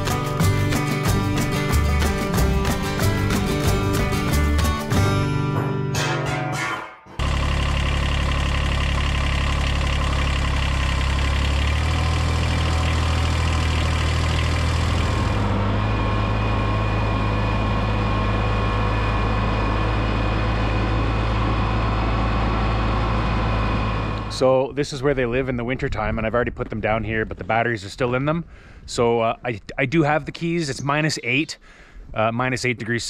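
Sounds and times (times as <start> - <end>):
tractor diesel engine running: 0.0 - 5.8, 7.1 - 26.3.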